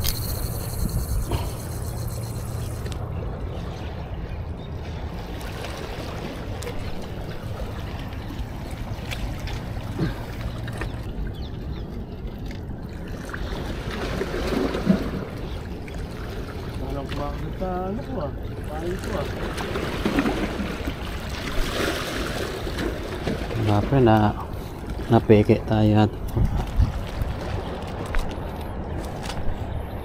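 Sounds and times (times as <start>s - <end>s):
low steady hum: 0.0s - 13.6s
water at seashore: 0.0s - 30.0s
wind: 0.0s - 30.0s.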